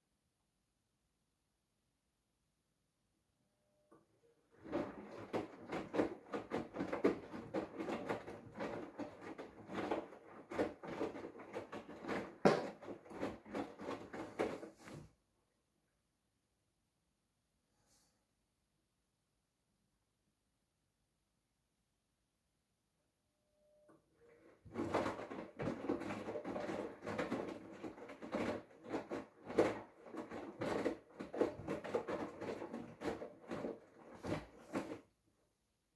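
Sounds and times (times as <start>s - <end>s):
laundry sloshing in washing machine drum: 4.5s - 15.0s, 24.4s - 35.1s.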